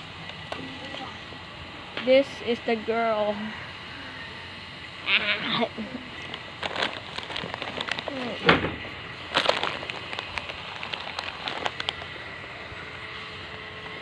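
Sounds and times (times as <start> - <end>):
crackling and clicking: 9.3 - 12.1.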